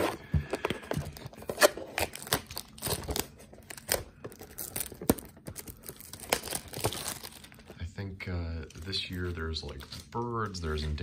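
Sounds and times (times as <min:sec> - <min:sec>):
plastic shrink wrap tearing: 0:01.5 - 0:07.8.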